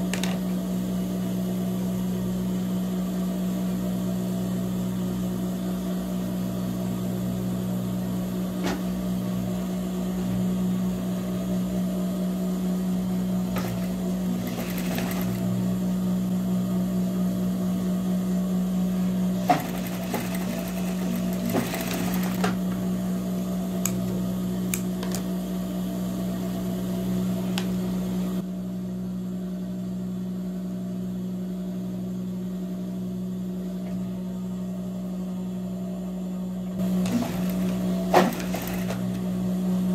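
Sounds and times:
sewing machine motor humming: 0:13.4 - 0:15.7, 0:19.3 - 0:23.0, 0:36.8 - 0:39.4.

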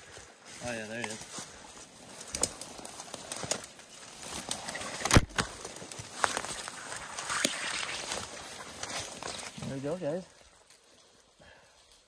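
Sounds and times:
branches brushing against clothing: 0:00.0 - 0:12.0
footsteps crunching through dry leaves: 0:00.0 - 0:12.0
twig snapping underfoot: 0:02.2 - 0:09.5.

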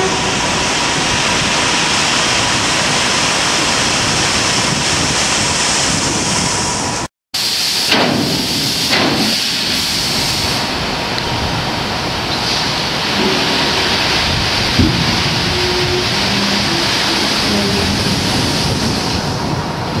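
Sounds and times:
gravel pouring rush: 0:11.8 - 0:20.0
knocks: 0:14.7 - 0:17.0.

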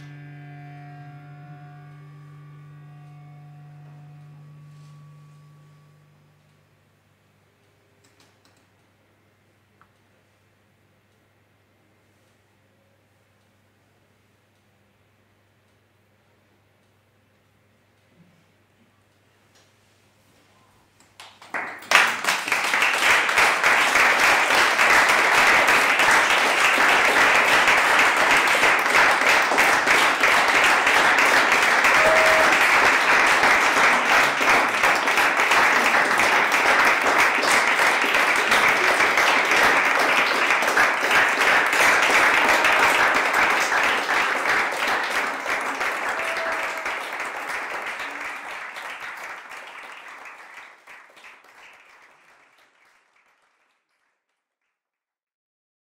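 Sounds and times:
audience applauding: 0:00.0 - 0:04.9, 0:21.2 - 0:54.3.

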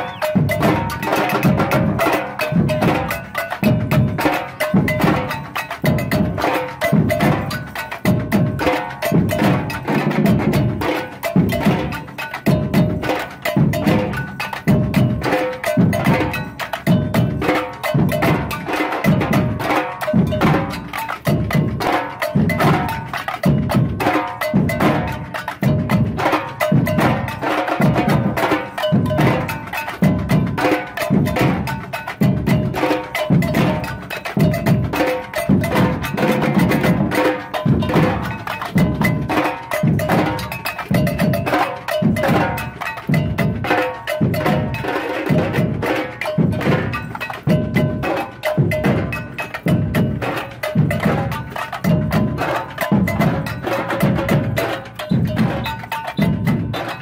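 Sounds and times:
percussion bell: 0:00.0 - 0:57.0
snare drums: 0:00.0 - 0:57.0.

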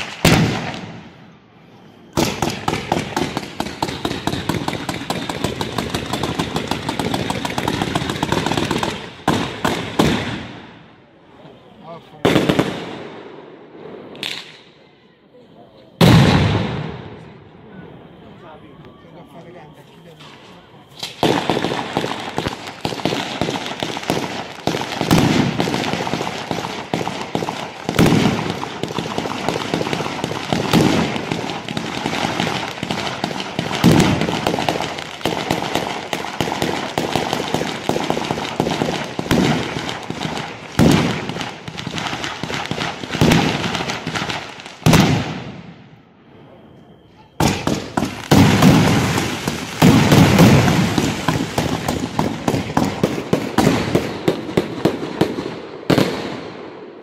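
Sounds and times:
heavy fireworks bangs: 0:00.0 - 0:01.4, 0:02.0 - 0:10.8, 0:11.9 - 0:14.4, 0:16.0 - 0:17.4, 0:21.0 - 0:45.9, 0:47.3 - 0:56.8
fireworks crackling densely: 0:00.0 - 0:13.2, 0:19.3 - 0:56.6.

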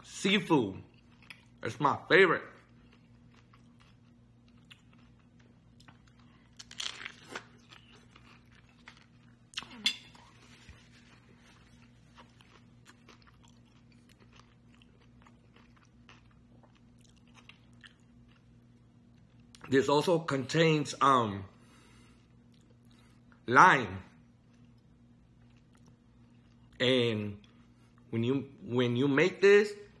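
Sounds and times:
person chewing crunchy food: 0:02.6 - 0:19.7.

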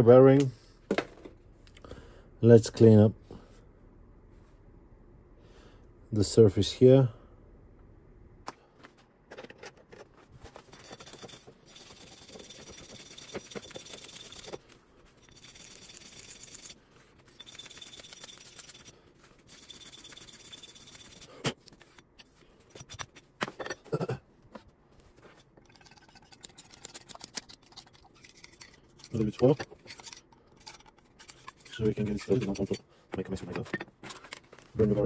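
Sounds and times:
metal knocks and scrapes: 0:25.2 - 0:34.6.

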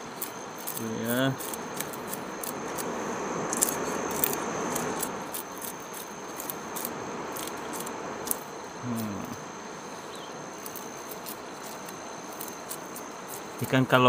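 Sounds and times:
knife scraping fish scales: 0:00.0 - 0:08.5
high insect drone: 0:00.0 - 0:14.0.

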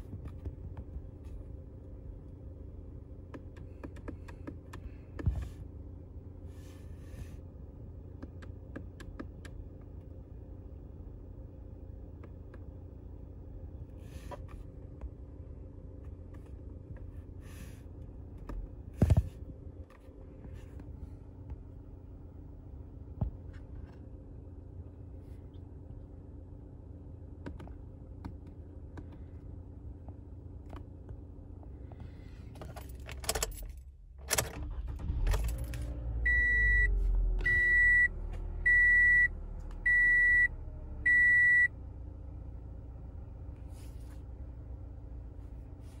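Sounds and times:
car engine idling: 0:00.0 - 0:46.0
engine shut-off clicks: 0:32.8 - 0:38.8.

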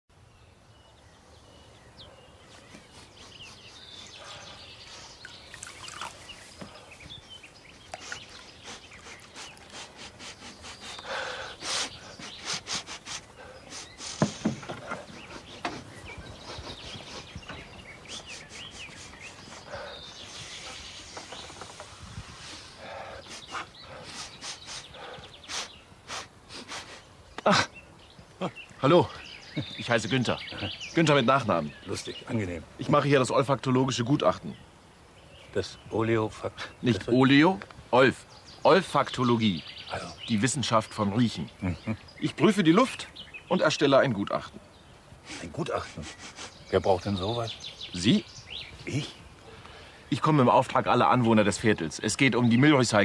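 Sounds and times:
birds chirping: 0:00.1 - 0:53.0
man sniffing: 0:02.8 - 0:05.2, 0:08.0 - 0:20.9, 0:22.4 - 0:27.6, 0:45.2 - 0:46.7.

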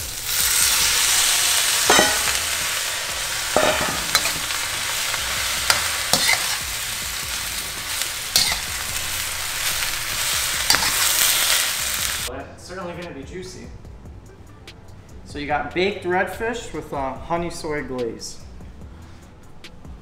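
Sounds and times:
vegetables sizzling in a wok: 0:00.0 - 0:12.3
spatula scraping a wok: 0:00.1 - 0:12.3.

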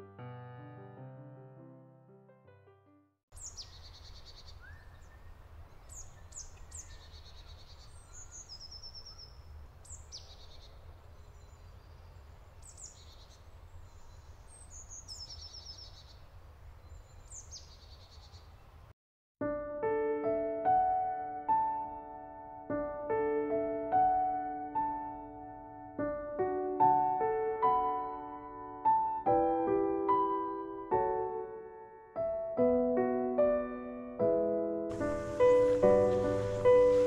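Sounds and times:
birds calling: 0:34.9 - 0:37.0.

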